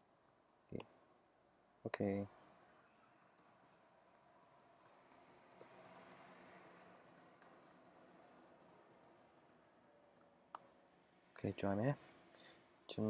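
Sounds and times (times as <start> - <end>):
faint keyboard typing: 0.0 - 1.0, 3.2 - 10.7.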